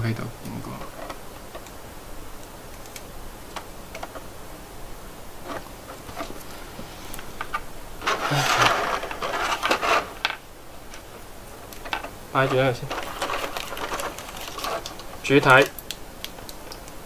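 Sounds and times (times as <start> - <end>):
plastic blister tray crackling: 2.4 - 4.4, 7.2 - 17.0.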